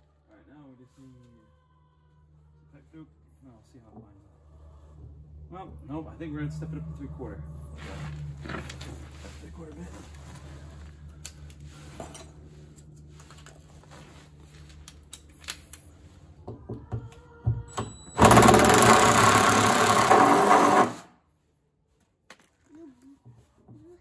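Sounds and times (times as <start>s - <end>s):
cordless drill drilling plastic: 18.2s - 21.1s.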